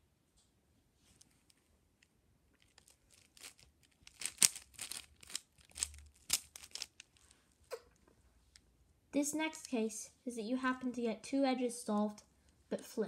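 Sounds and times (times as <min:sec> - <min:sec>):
puzzle cube clicking and rasping: 0:02.6 - 0:07.4.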